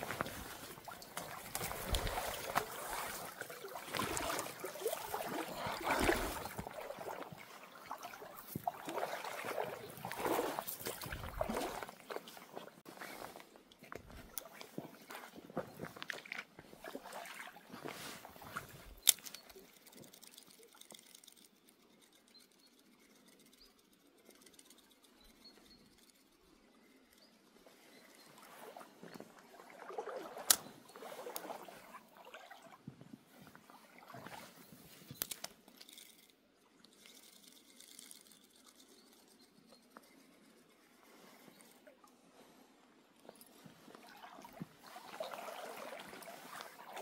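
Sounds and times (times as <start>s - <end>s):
stream trickling over stones: 0.0s - 26.8s, 28.0s - 32.9s, 33.5s - 42.2s, 43.2s - 47.0s.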